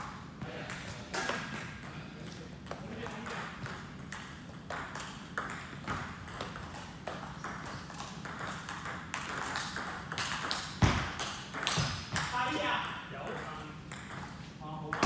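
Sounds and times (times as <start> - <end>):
table tennis balls clicking: 2.7 - 12.4.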